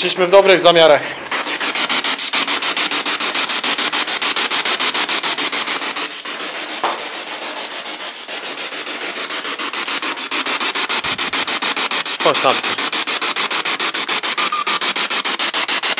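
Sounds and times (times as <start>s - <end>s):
short chirp: 14.4s - 14.9s.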